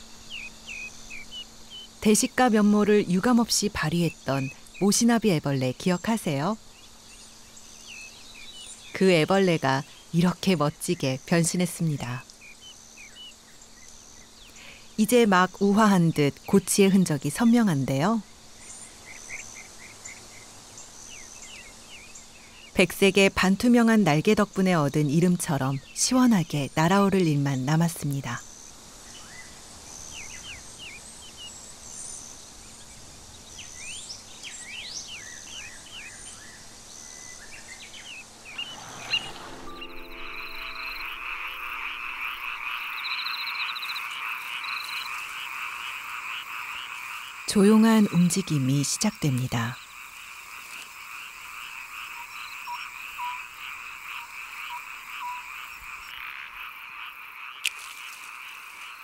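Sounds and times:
frogs calling: 0.0s - 32.1s, 33.6s - 59.0s
birds chirping: 33.4s - 57.2s
thin high buzzing note: 38.6s - 43.0s.

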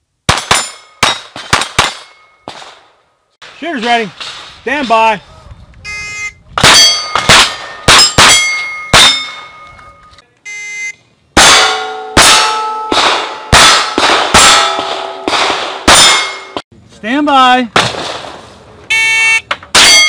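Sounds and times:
pistol shots: 0.3s - 2.9s, 6.6s - 9.5s, 11.4s - 16.6s
steel plate ringing: 6.6s - 10.1s, 11.4s - 16.6s.

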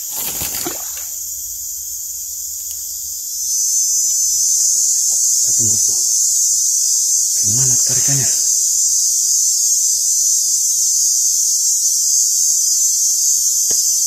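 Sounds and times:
brief rustle: 0.0s - 1.2s
insects chorus: 0.0s - 14.0s.

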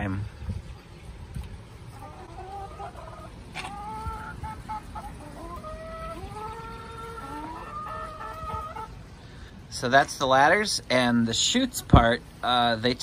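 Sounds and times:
hens clucking: 1.8s - 9.2s.

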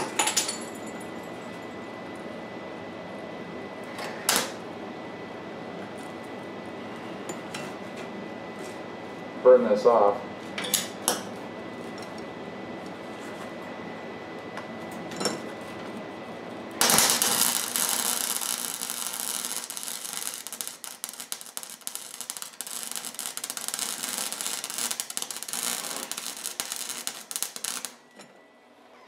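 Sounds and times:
steady hum: 0.0s - 29.0s
welding arc crackling: 16.8s - 28.0s.

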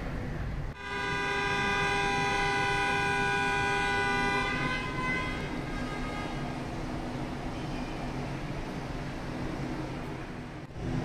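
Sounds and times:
horn long steady note: 0.8s - 7.2s.

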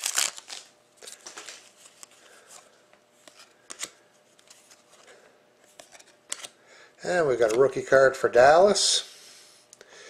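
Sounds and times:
rustling of trading cards: 0.0s - 6.6s.

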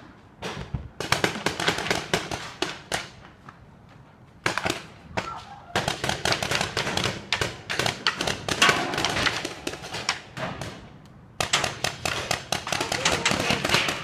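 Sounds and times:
paintball markers firing: 11.4s - 14.0s.

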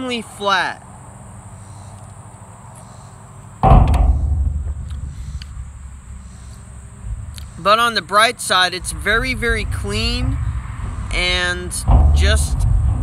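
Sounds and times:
low handling rumble: 3.6s - 13.0s.

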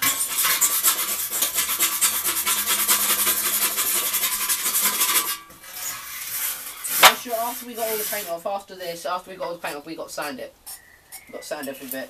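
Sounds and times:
rasping strokes on painted metal: 0.0s - 8.5s.

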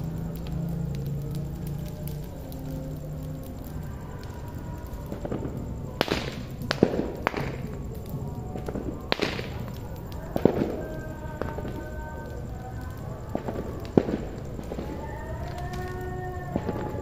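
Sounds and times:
bonfire burning: 0.0s - 17.0s
fire pops and cracks: 0.0s - 17.0s.

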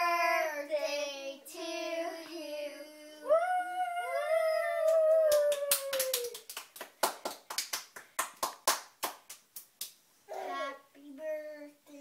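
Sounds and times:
children cheering: 3.3s - 6.4s
hand clapping: 4.8s - 10.0s.

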